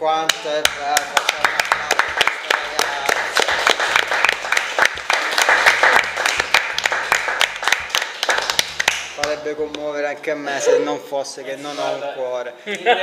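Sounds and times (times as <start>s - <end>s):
people applauding: 0.2s - 9.4s.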